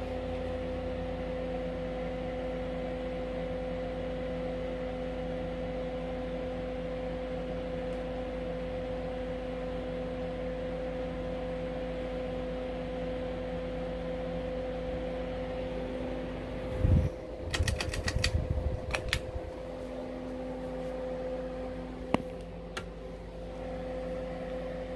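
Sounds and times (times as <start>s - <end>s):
ceiling fan humming: 0.0s - 24.9s
space heater humming: 0.0s - 24.9s
quick clicks: 17.5s - 19.4s
sharp click: 17.5s - 19.4s.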